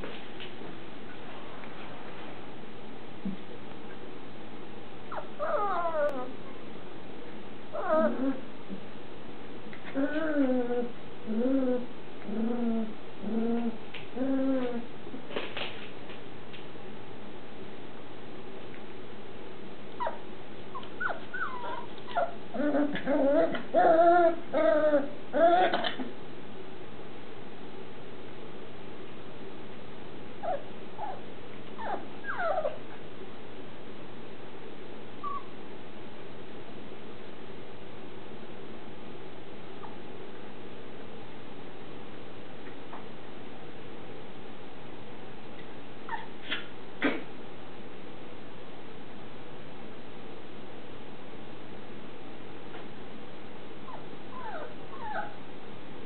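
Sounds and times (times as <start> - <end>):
puppies whining: 5.1 - 6.4, 7.7 - 8.4, 20.0 - 26.0, 31.8 - 32.8, 35.2 - 35.6, 53.9 - 55.4.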